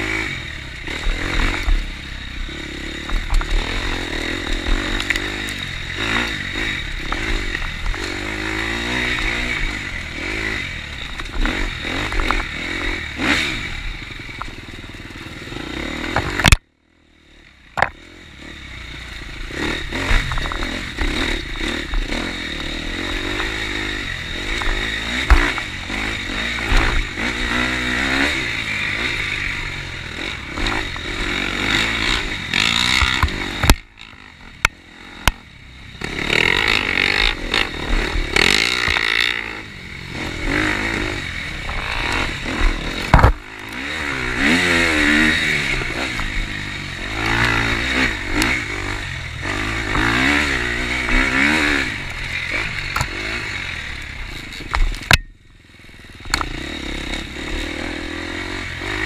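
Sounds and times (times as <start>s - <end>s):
dirt bike engine revving: 0.0s - 59.0s
bike clattering over rough ground: 41.5s - 45.2s.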